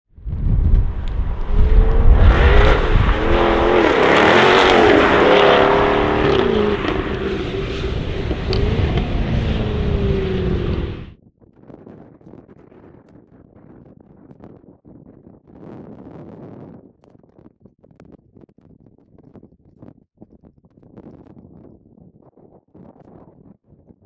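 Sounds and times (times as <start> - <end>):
exhaust crackles: 0.4 - 11.1
car engine accelerating hard: 0.7 - 11.1.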